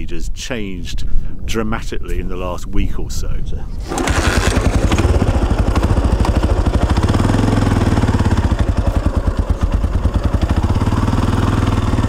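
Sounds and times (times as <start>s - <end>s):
motorbike engine revving: 3.8s - 12.0s.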